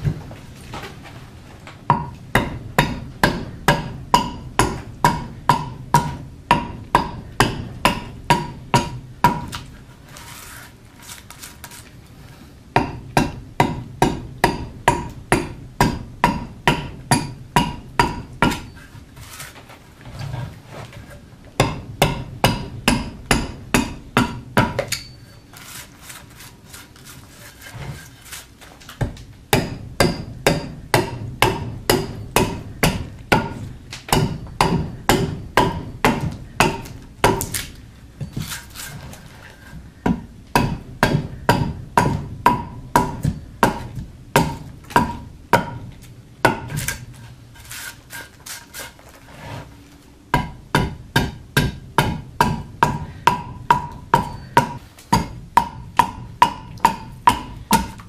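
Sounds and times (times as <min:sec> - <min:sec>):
adze chopping wood: 0:29.0 - 0:37.8, 0:40.1 - 0:45.8, 0:50.4 - 0:58.0.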